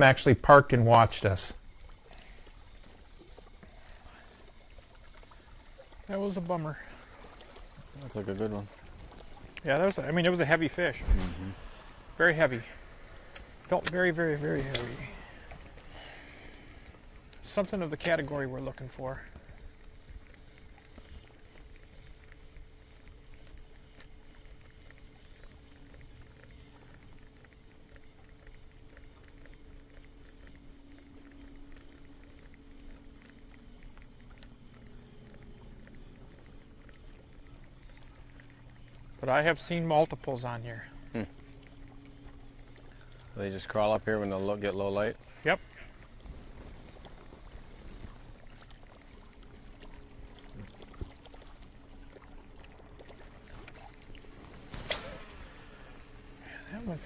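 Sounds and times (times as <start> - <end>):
boat motor hum: 0.0 - 57.0
low steady rumble: 0.0 - 57.0
small ticks: 0.0 - 57.0
water lapping and splashing: 0.0 - 57.0.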